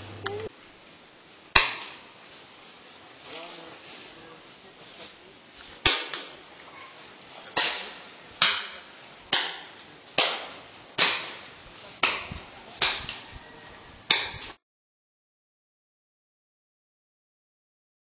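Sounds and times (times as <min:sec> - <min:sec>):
footsteps crunching dry leaves: 0:00.8 - 0:14.6.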